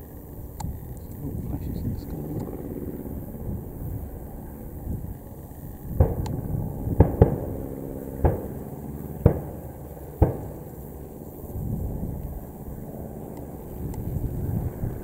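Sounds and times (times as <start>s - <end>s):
piston engines droning: 0.0s - 15.0s
pyrotechnic bangs: 5.8s - 11.0s.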